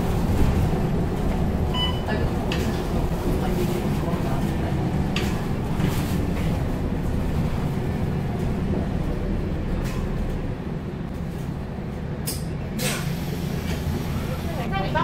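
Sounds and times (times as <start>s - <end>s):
bus engine drone: 0.0s - 15.0s
road noise: 0.0s - 15.0s
brief air hisses: 12.8s - 14.3s.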